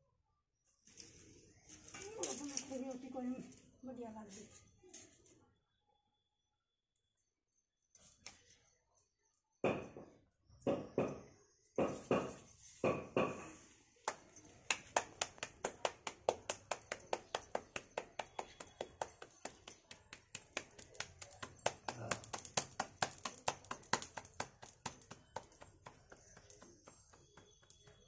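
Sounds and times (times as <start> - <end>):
dough slapped between palms: 14.1 - 28.0.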